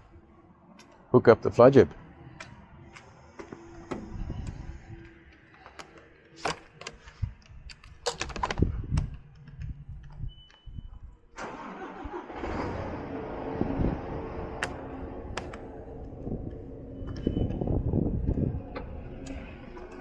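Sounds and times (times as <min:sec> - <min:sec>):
truck engine starting and running: 0:11.3 - 0:20.0.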